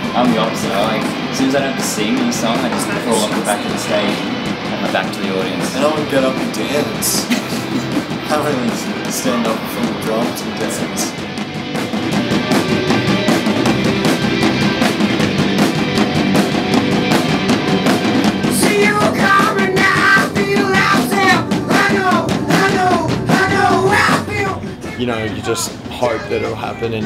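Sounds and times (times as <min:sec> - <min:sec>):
rock band playing: 0:00.0 - 0:27.0
person singing: 0:18.5 - 0:27.0.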